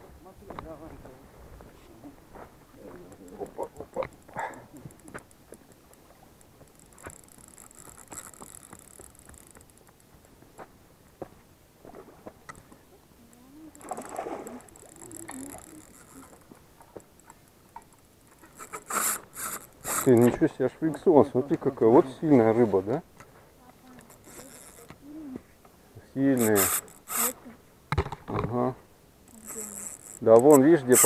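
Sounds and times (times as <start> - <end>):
water splashing and sloshing: 11.8 - 20.1.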